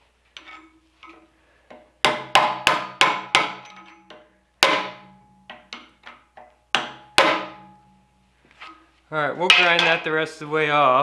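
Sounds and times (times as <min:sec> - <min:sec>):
hammer striking steel chisel: 0:00.4 - 0:08.0, 0:09.5 - 0:10.1.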